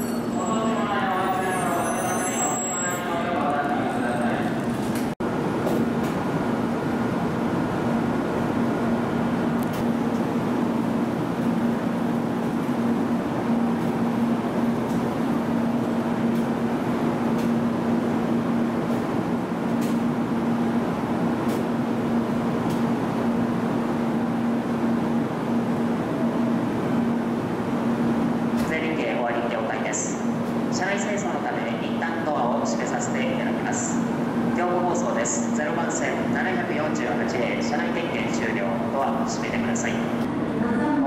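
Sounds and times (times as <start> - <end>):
train equipment humming: 0.0 - 41.0.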